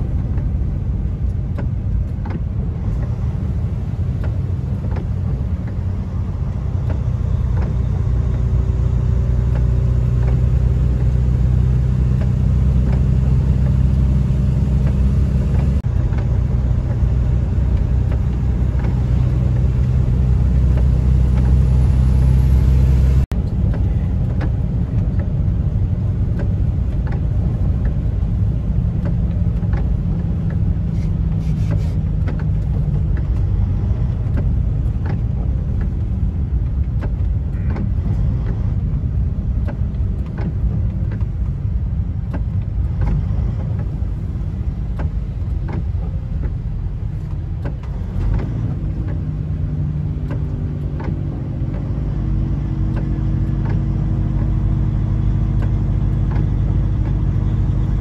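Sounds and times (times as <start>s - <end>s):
low engine drone: 0.0s - 58.0s
tyre noise on wet road: 0.0s - 58.0s.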